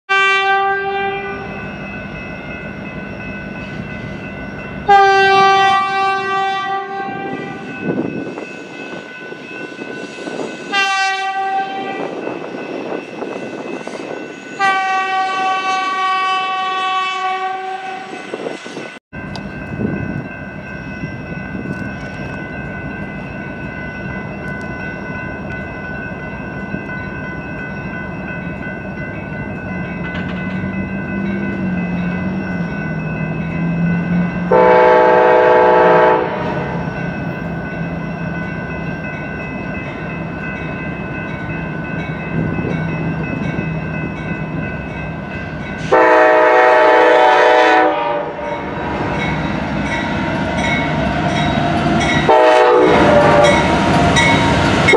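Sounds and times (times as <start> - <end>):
train horn blasts: 0.1 - 1.6, 4.9 - 7.7, 10.7 - 12.2, 14.6 - 18.2, 34.4 - 36.8, 45.8 - 48.7, 52.3 - 53.7
train rumbling: 0.1 - 54.9.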